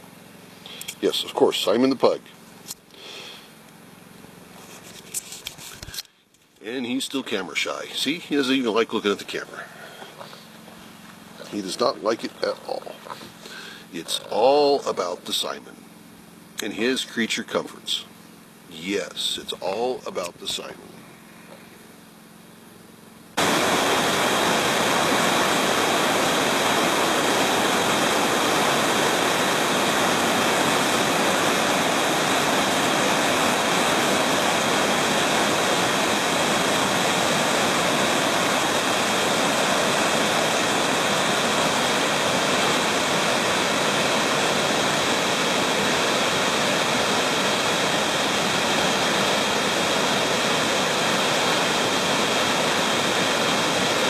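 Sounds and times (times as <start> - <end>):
river water rushing over rocks: 23.4 - 54.0.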